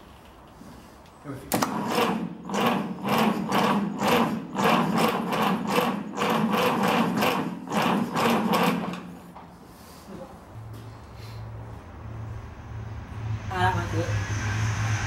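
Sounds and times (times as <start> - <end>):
diesel engine cranking: 1.5 - 9.3.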